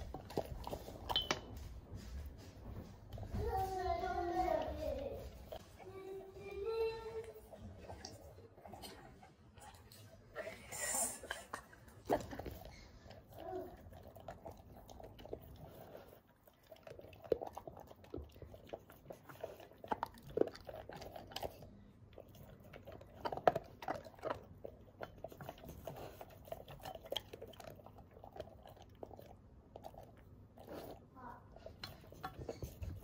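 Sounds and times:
puppy crunching dry kibble: 0.0 - 2.5, 11.3 - 33.0.

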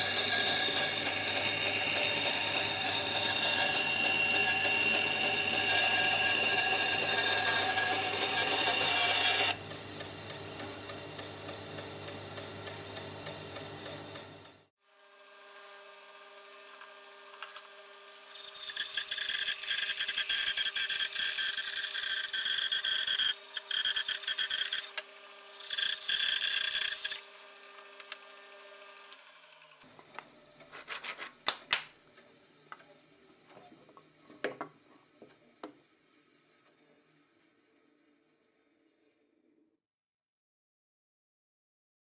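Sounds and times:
bandsaw blade cutting wood: 0.0 - 9.6, 16.7 - 29.9
bandsaw motor humming: 0.0 - 30.7
wood knocking on table: 34.4 - 34.8.

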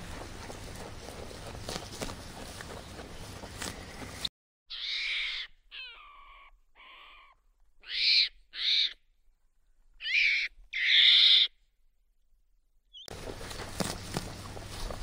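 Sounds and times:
monkey high-pitched calls: 4.7 - 9.0, 10.0 - 11.5.

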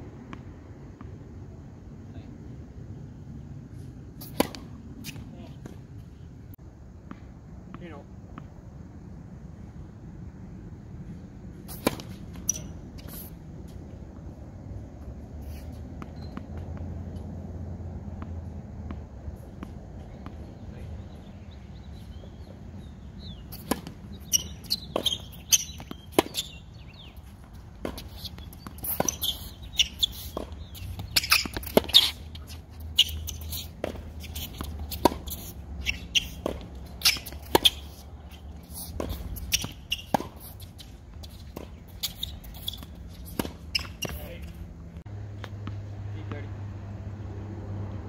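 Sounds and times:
shoes squeaking on court: 3.7 - 6.2, 11.6 - 17.4, 18.1 - 45.8
racket hitting tennis ball: 4.1 - 5.9, 11.6 - 14.2, 22.1 - 44.7
ball bouncing on hard court: 23.2 - 27.2, 27.8 - 40.6, 41.2 - 44.4.

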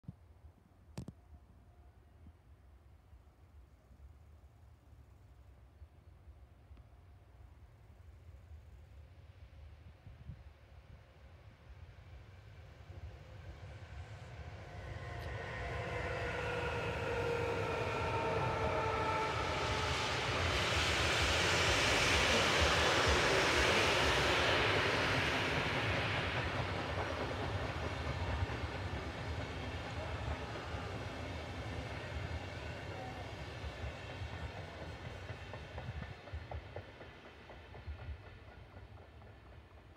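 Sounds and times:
wheels rushing on rail: 12.1 - 39.9
train whine sliding down in pitch: 12.9 - 38.6.

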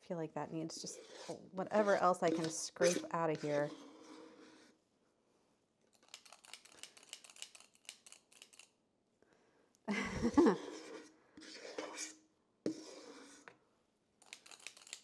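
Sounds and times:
metal scoop scraping a bowl: 0.7 - 4.8, 10.6 - 13.5.

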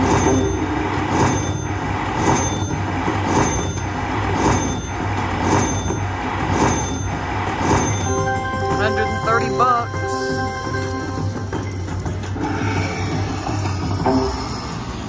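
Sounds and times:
steady low drone: 0.0 - 15.0
slot machine bright hits: 6.7 - 12.3.

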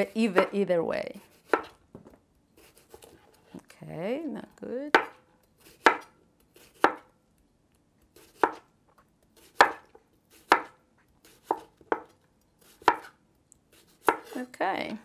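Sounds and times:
knife chopping on wooden board: 1.3 - 1.8, 4.9 - 7.1, 8.2 - 8.7, 9.4 - 12.1, 12.7 - 13.2, 13.8 - 14.4.

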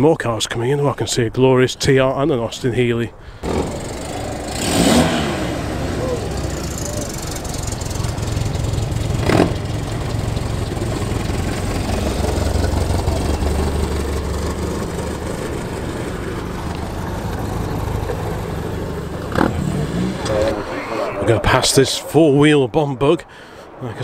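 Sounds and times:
sports car engines at low revs: 3.4 - 21.6.

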